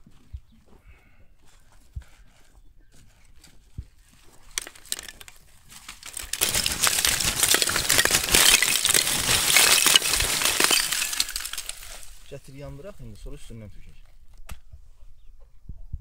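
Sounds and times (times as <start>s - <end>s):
charcoal clattering onto pile: 4.4s - 12.4s.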